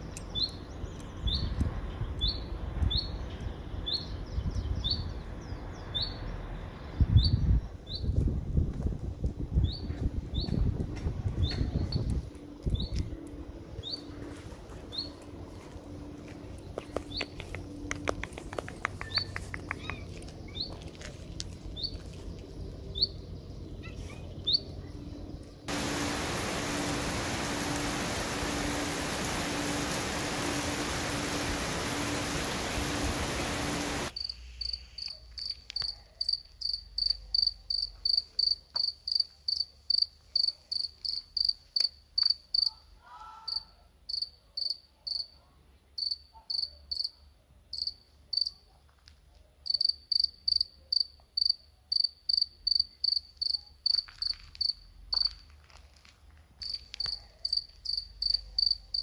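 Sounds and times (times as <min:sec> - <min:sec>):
loud steady hiss: 0:25.7 - 0:35.1
cricket chirping: 0:31.0 - 0:42.7, 0:43.5 - 0:45.3, 0:46.0 - 0:48.6, 0:49.6 - 0:55.4, 0:56.6 - 0:59.0.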